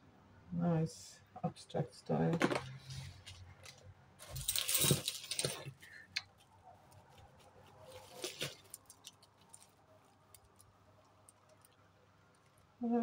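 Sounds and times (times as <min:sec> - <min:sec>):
beads and chains clattering: 0:04.2 - 0:06.1.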